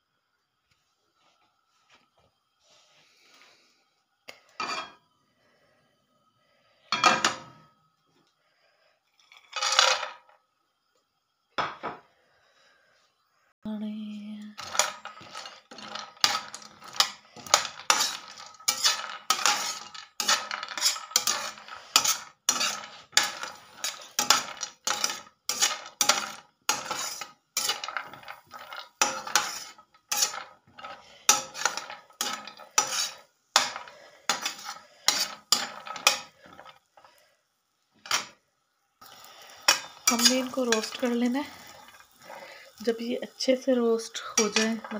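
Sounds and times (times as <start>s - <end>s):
metal spatula scraping frying pan: 14.6s - 37.2s, 38.0s - 38.4s, 39.0s - 43.0s, 44.2s - 44.9s.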